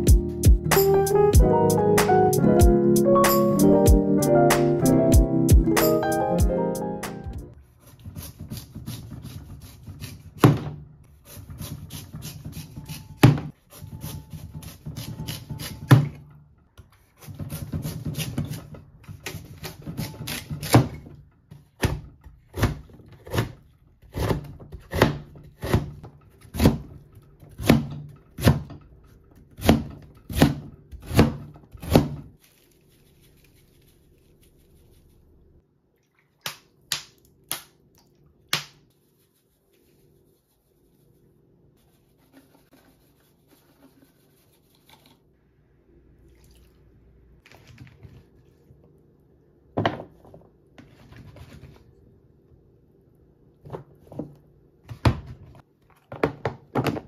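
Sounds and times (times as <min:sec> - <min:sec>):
knife chopping on cutting board: 0:08.0 - 0:10.8, 0:21.8 - 0:26.9, 0:29.5 - 0:32.2.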